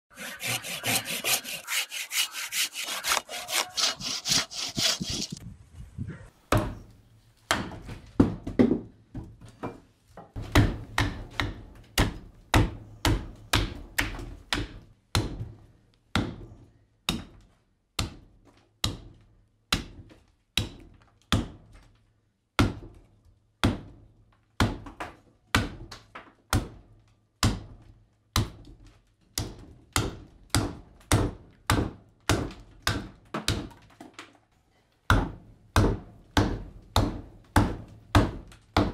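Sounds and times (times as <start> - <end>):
hand saw cutting wood: 0.1 - 5.4
hatchet chopping wood: 0.2 - 5.4, 7.5 - 8.7, 10.4 - 15.5, 29.4 - 33.7, 35.1 - 38.9.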